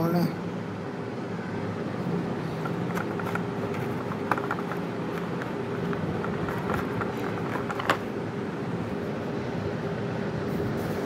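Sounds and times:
steady background hum: 0.0s - 11.0s
hard plastic clicks and taps: 2.6s - 8.0s.

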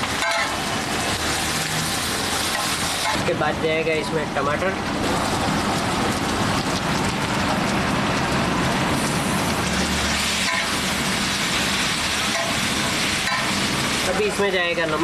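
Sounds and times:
vegetables sizzling on hot plate: 0.0s - 15.0s.

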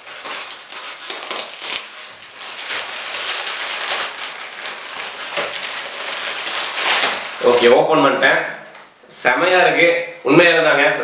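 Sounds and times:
plastic bag crinkling: 0.0s - 7.9s.

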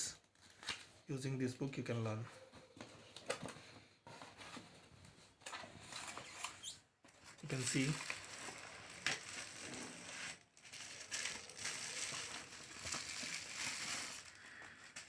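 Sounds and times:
bubble wrap crinkling: 5.9s - 15.0s.

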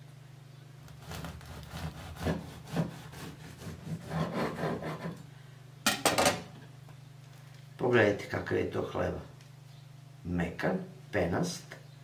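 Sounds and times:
knife sawing through bread: 0.9s - 5.2s.

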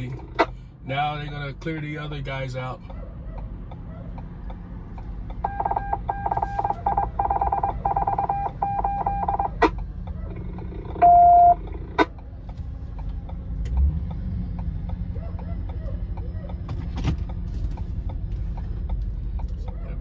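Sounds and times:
low steady rumble: 0.0s - 20.0s
long electronic beep: 5.4s - 9.6s, 11.0s - 11.6s.

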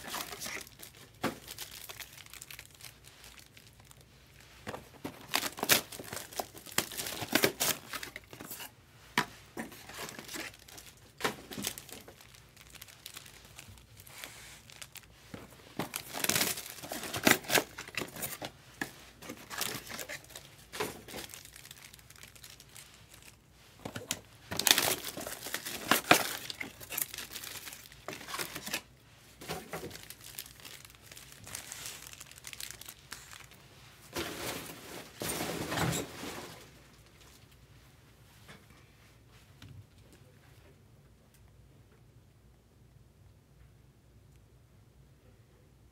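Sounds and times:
card pack wrappers crinkling: 0.0s - 8.7s, 9.5s - 35.2s.

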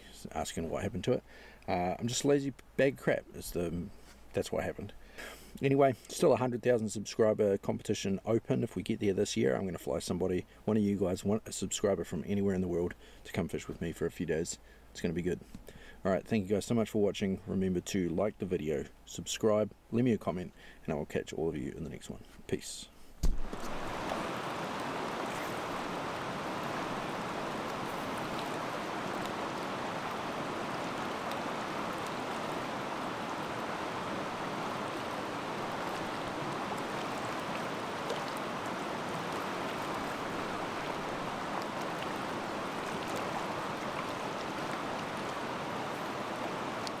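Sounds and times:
river rushing over rocks: 23.4s - 47.0s.

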